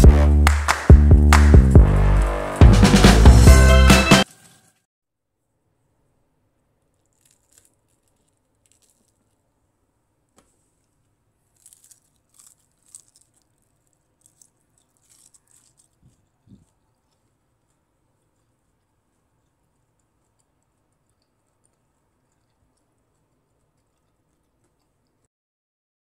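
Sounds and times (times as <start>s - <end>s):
crunching fried chicken: 6.8s - 9.6s, 10.4s - 25.3s.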